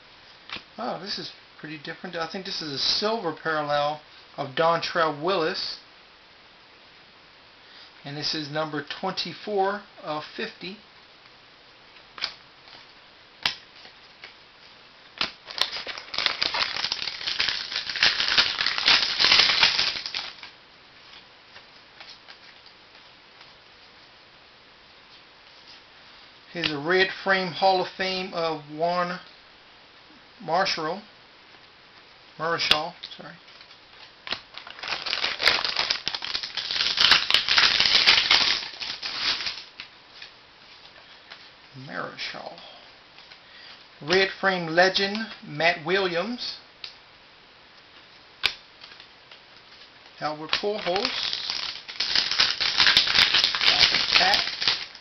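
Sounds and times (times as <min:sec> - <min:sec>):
card packaging crackling and rustling: 0:15.2 - 0:20.5, 0:33.5 - 0:41.4, 0:48.4 - 0:55.0.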